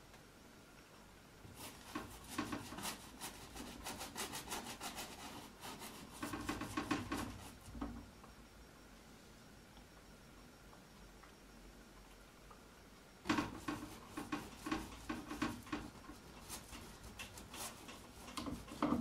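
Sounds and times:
paintbrush scrubbing on canvas: 1.6s - 7.6s, 13.3s - 19.0s.

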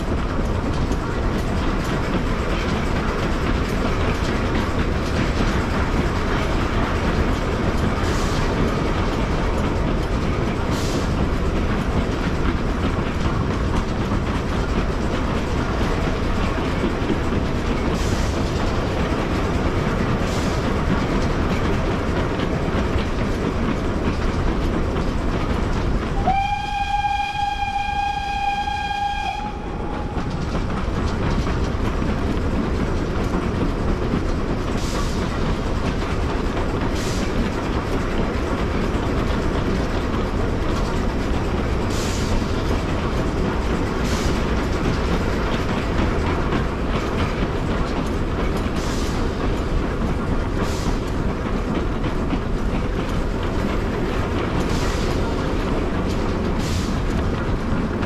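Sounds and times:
steam train running on track: 0.0s - 58.0s
steam locomotive whistle: 26.2s - 30.2s.

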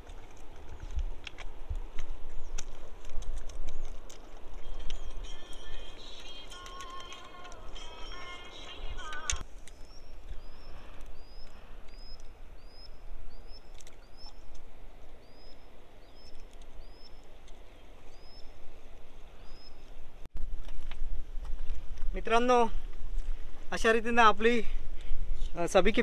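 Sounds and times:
wind rumble on microphone: 0.0s - 8.0s
bird chirping: 3.6s - 20.0s.

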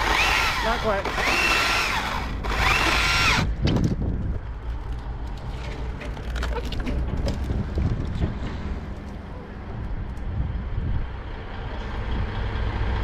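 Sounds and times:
battery chainsaw cutting wood: 0.0s - 3.5s.

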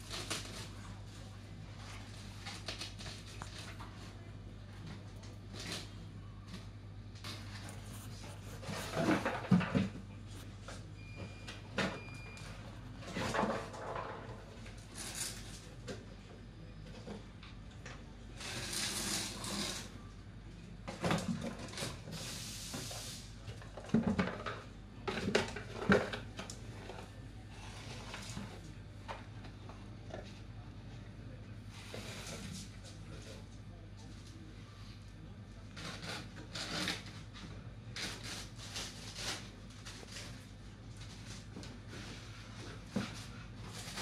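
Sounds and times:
cardboard scraping across floor: 7.3s - 9.9s, 31.7s - 32.7s.

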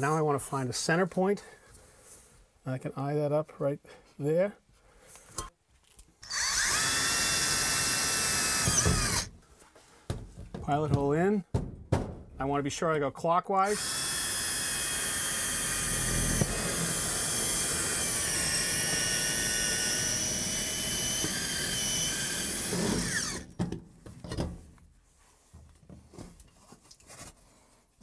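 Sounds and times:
faint handling sounds: 24.1s - 28.0s.

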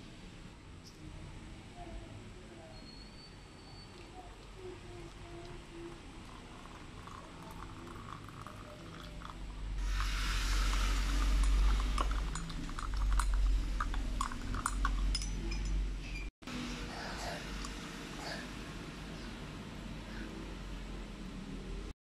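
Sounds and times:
water poured into glass mug: 5.9s - 14.8s
metal spoon clinking against glass: 14.2s - 15.9s.

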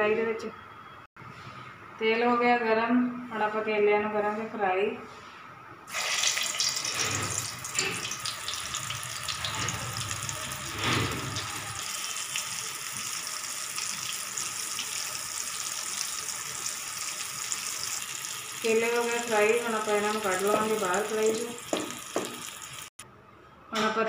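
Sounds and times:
bananas sizzling in hot oil: 5.9s - 23.0s.

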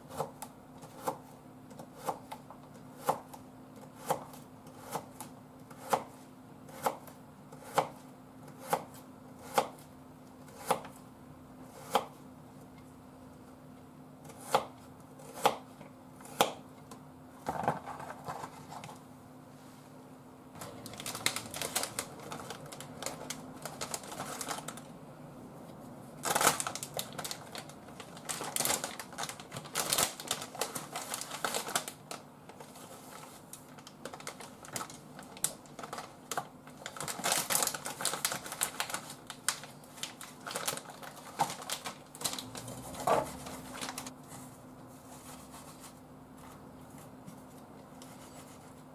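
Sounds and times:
knife chopping on cutting board: 5.7s - 8.0s, 14.2s - 16.6s
plastic bag crinkling: 20.6s - 24.9s, 26.2s - 44.1s.

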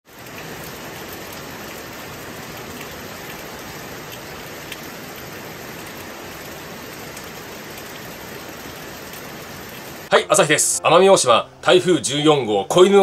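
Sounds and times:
raindrop ticks: 0.1s - 10.1s
heavy rain hiss: 0.1s - 13.0s.

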